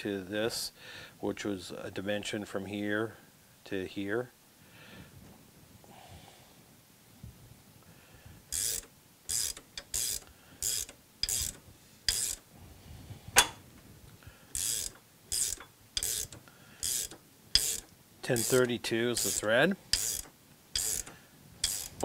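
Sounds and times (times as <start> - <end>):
ratchet wrench clicking: 8.5 - 12.4, 14.5 - 22.0.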